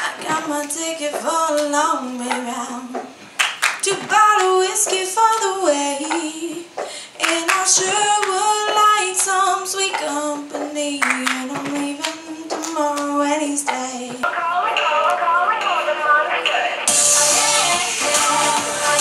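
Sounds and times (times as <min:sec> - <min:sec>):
girl singing into a microphone: 0:00.0 - 0:03.2, 0:03.8 - 0:19.0
audience clapping: 0:03.3 - 0:05.5, 0:07.2 - 0:10.1, 0:11.0 - 0:13.1, 0:13.7 - 0:19.0.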